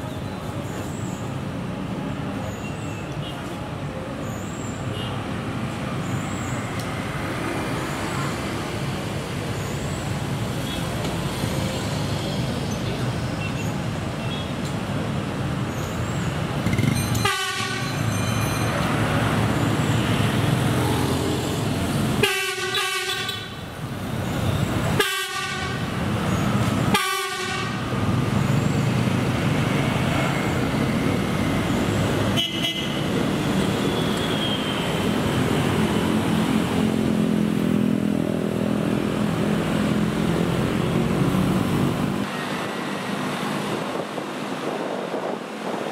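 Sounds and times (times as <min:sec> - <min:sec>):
street traffic: 0:00.0 - 0:45.9
train horn toots: 0:17.2 - 0:17.9, 0:25.0 - 0:25.8, 0:26.9 - 0:27.8.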